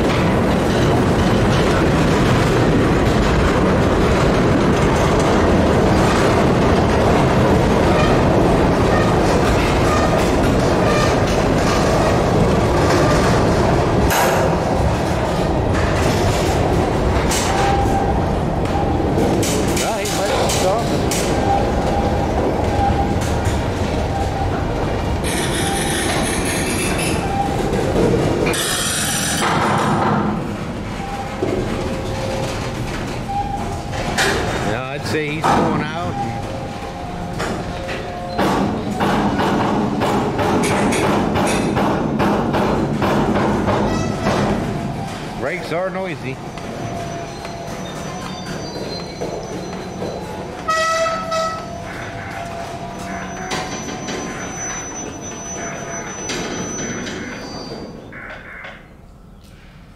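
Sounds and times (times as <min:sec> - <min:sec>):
freight train wheels rumbling: 0:00.0 - 0:59.9
train wheels squealing: 0:25.2 - 0:27.6, 0:46.5 - 0:58.2.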